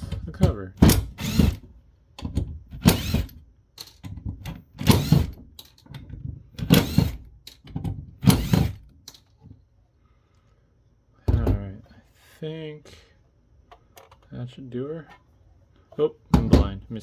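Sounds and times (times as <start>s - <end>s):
impact driver bursts: 0.8s - 1.7s, 2.7s - 3.4s, 4.8s - 5.4s, 6.6s - 7.3s, 8.2s - 8.9s.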